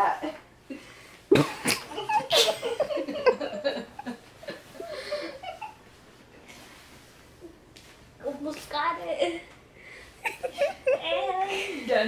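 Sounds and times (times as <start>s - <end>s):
girl laughing: 1.3s - 5.8s, 10.2s - 11.9s.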